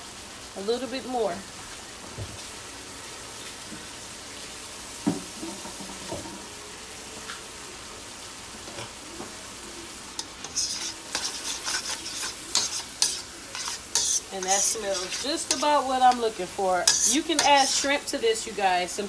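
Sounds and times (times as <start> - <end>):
chicken sizzling in a wok: 0.0 - 19.0
utensil scraping in a pan: 10.1 - 18.1.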